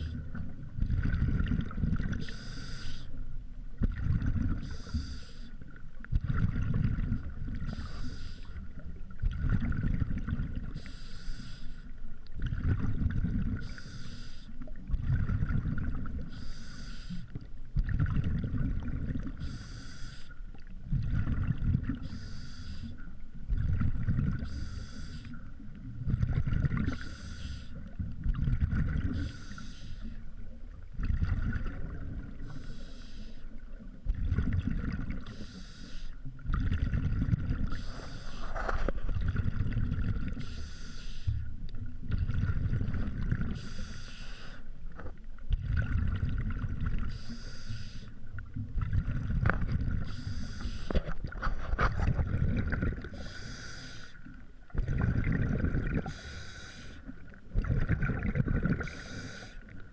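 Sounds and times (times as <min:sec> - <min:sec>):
exhaled bubbles rumbling: 0:00.0 - 0:02.4, 0:03.2 - 0:04.8, 0:05.7 - 0:10.9, 0:12.1 - 0:13.8, 0:14.6 - 0:16.4, 0:17.3 - 0:19.6, 0:20.5 - 0:22.3, 0:23.2 - 0:32.6, 0:33.6 - 0:35.4, 0:36.2 - 0:40.5, 0:41.3 - 0:43.8, 0:44.9 - 0:47.4, 0:48.2 - 0:53.5, 0:54.2 - 0:56.4, 0:57.0 - 0:59.9
regulator inhale hiss: 0:02.2 - 0:03.2, 0:04.6 - 0:05.6, 0:07.7 - 0:08.7, 0:10.8 - 0:12.0, 0:13.6 - 0:14.6, 0:16.3 - 0:17.4, 0:19.4 - 0:20.4, 0:22.0 - 0:23.1, 0:24.4 - 0:25.5, 0:26.9 - 0:27.9, 0:29.2 - 0:30.2, 0:32.4 - 0:33.6, 0:35.2 - 0:36.2, 0:37.6 - 0:39.0, 0:40.4 - 0:41.5, 0:43.6 - 0:44.8, 0:47.1 - 0:48.3, 0:50.0 - 0:51.2, 0:53.1 - 0:54.4, 0:56.0 - 0:57.2, 0:58.8 - 0:59.8.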